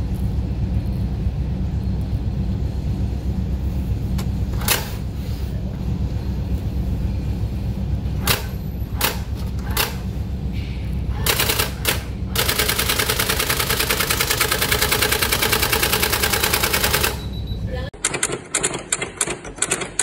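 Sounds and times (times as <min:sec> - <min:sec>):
low hum: 0:00.0 - 0:18.0
typewriter print mechanism striking: 0:04.5 - 0:05.0, 0:08.2 - 0:10.0, 0:11.2 - 0:17.4, 0:18.0 - 0:20.0.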